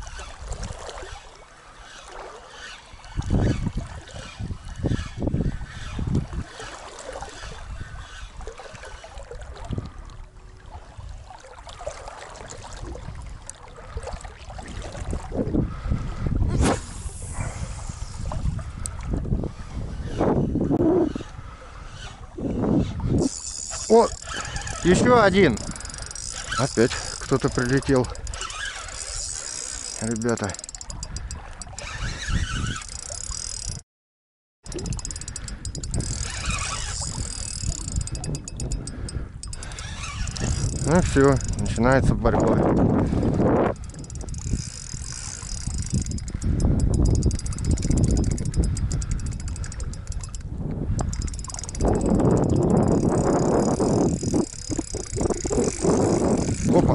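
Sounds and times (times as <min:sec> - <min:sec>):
river water flowing: 0:00.0 - 0:03.2, 0:05.8 - 0:07.6, 0:10.5 - 0:15.1, 0:23.3 - 0:32.0
fishing reel clicks: 0:22.9 - 0:33.8, 0:34.7 - 0:56.9.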